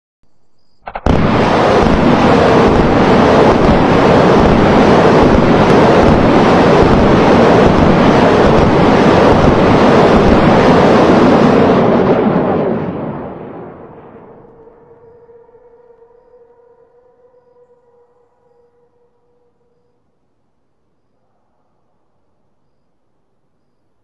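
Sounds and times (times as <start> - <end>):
rocket motors roaring: 0.8 - 16.4.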